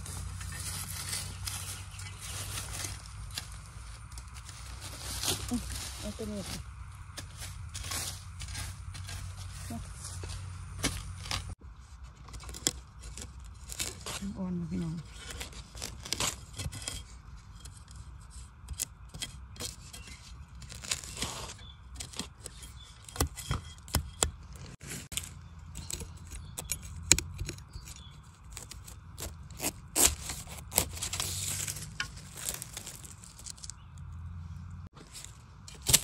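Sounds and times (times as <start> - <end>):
dry bamboo leaves rustling: 0.0 - 18.1, 19.6 - 36.0
scraping: 0.0 - 36.0
twigs cracking and snapping: 0.2 - 9.5, 25.0 - 34.2, 35.1 - 36.0.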